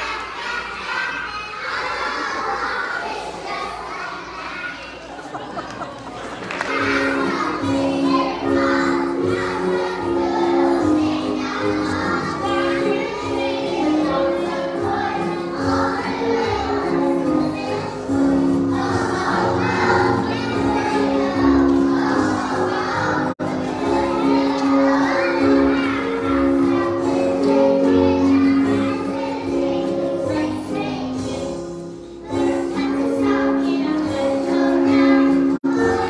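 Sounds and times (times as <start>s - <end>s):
children's choir singing: 0.0s - 36.0s
musical accompaniment: 6.0s - 36.0s.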